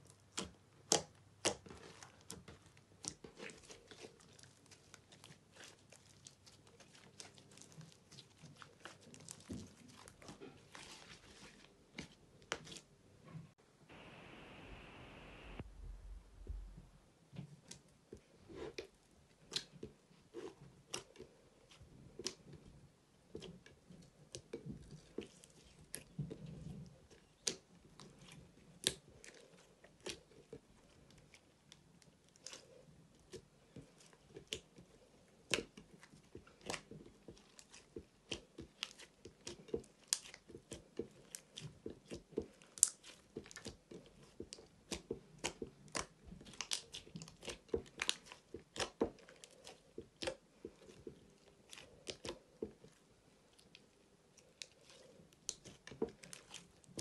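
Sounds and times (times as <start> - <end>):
slime squished by hand: 33.2 - 57.0.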